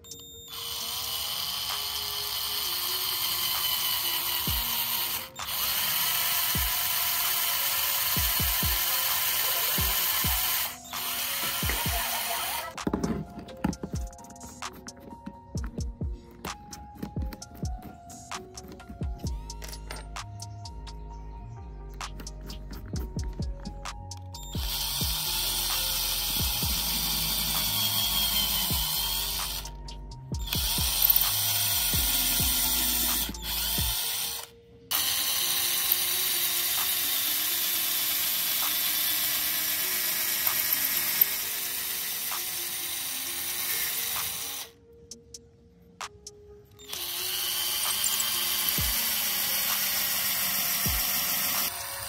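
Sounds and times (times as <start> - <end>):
cordless drill boring into wood: 0.0 - 13.0, 24.4 - 29.8, 30.4 - 44.8, 46.8 - 52.0.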